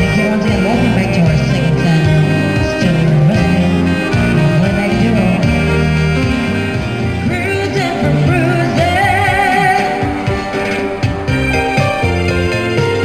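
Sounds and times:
woman singing ballad: 0:00.0 - 0:05.8, 0:07.2 - 0:10.8
keyboard accompaniment: 0:00.0 - 0:13.0.

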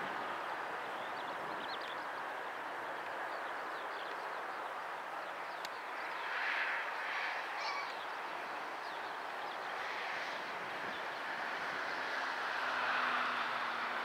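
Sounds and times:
faint bird chirps: 0:07.5 - 0:08.1.

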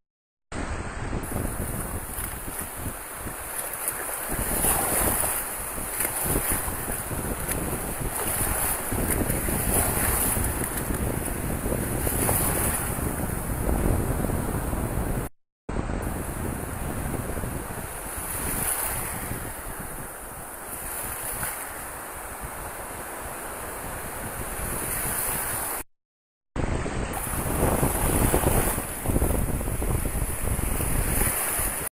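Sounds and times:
surf washing and fizzing: 0:00.6 - 0:14.9, 0:16.0 - 0:25.8, 0:26.6 - 0:31.9
wind buffeting microphone: 0:00.6 - 0:25.8, 0:26.6 - 0:31.9.

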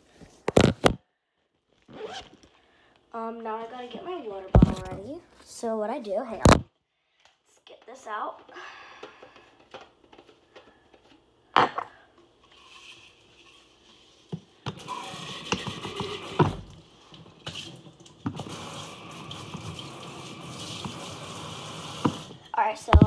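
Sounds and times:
tap running into sink: 0:21.9 - 0:23.0.

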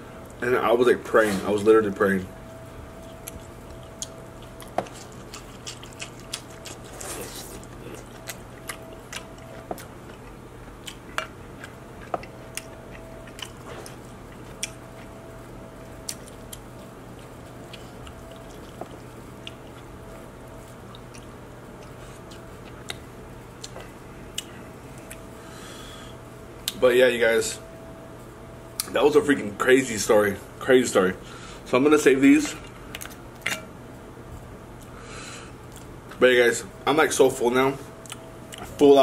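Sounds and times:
steady low hum: 0:00.0 - 0:39.0
man chewing with mouth clicks: 0:02.9 - 0:25.4, 0:32.6 - 0:33.6, 0:35.6 - 0:36.2, 0:38.0 - 0:38.8.

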